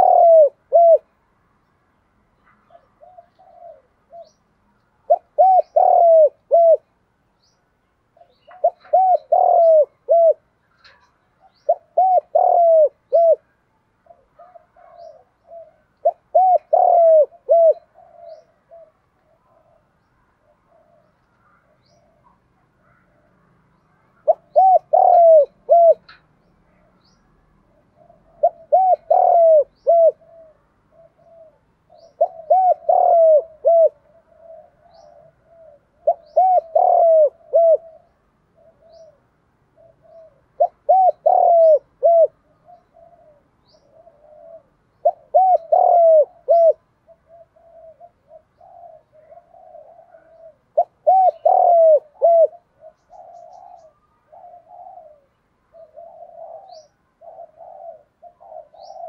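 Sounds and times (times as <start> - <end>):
dove cooing: 0.0 - 1.2, 2.5 - 7.0, 8.1 - 59.0.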